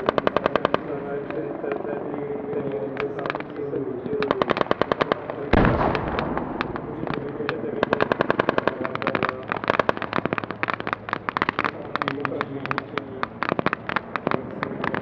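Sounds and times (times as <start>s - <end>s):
automatic gunfire bursts: 4.5s - 7.2s
heavy bang: 5.5s - 8.4s.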